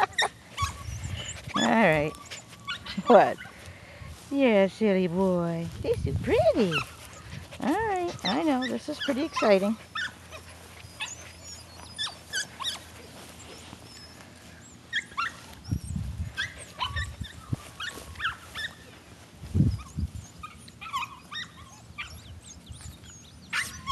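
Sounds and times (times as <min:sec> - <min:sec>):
puppy yipping and whimpering: 0:00.0 - 0:03.6, 0:06.6 - 0:19.0, 0:19.6 - 0:23.9.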